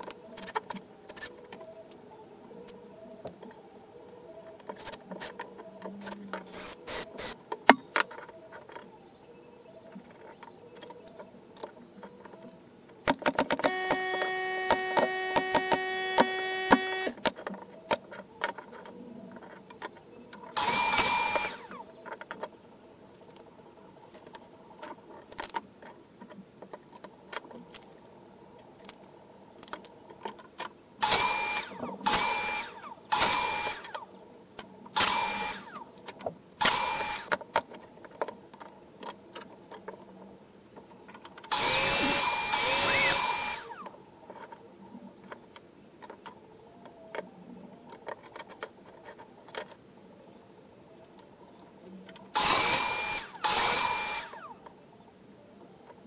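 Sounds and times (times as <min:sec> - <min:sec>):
wood and tools clicking: 0:04.4 - 0:09.0, 0:09.9 - 0:49.8, 0:51.0 - 0:54.8
power drill motor whine: 0:06.5 - 0:07.4, 0:13.6 - 0:17.2, 0:20.6 - 0:21.8, 0:31.0 - 0:34.0, 0:35.0 - 0:35.9, 0:36.6 - 0:37.3, 0:41.5 - 0:44.0, 0:52.4 - 0:54.6.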